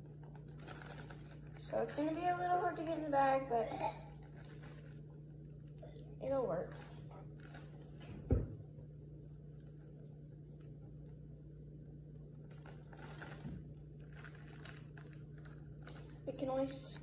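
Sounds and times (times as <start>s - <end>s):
plastic bag rustling: 0.2s - 5.7s, 6.3s - 8.2s, 12.3s - 17.0s
dull thump: 8.2s - 8.6s.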